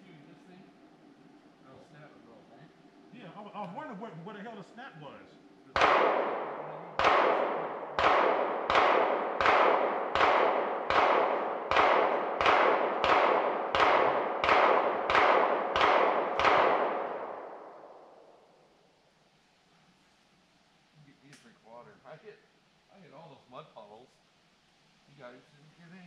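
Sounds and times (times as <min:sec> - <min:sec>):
gunshots echoing: 0:05.7 - 0:18.4.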